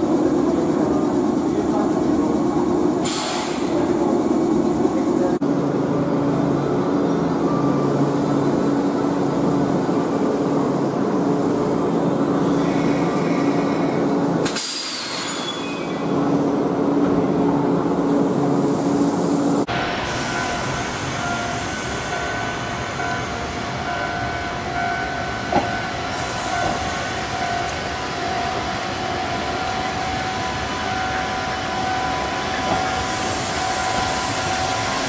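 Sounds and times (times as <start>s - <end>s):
electric train mechanical hum: 0.0s - 35.0s
sharp air hiss: 3.0s - 3.8s, 14.4s - 15.9s.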